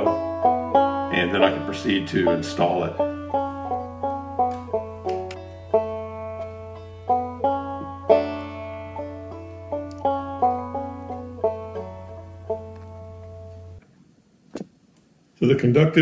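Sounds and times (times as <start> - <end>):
plucked string instrument: 0.0 - 13.8.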